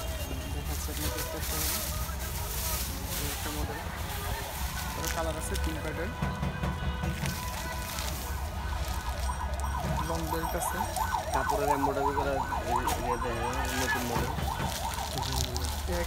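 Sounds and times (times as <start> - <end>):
warbling siren-like wail: 7.5 - 16.0.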